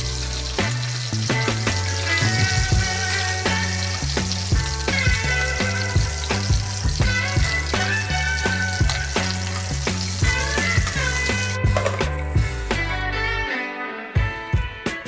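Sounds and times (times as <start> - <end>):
chicken sizzling in hot oil: 0.0 - 11.6
background music with walking bass: 0.0 - 15.0.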